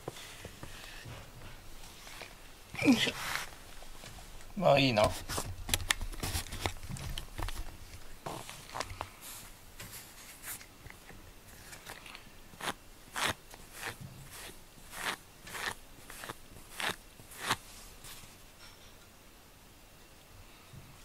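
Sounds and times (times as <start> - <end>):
brush strokes through fur: 3.0 - 4.3, 12.6 - 18.4.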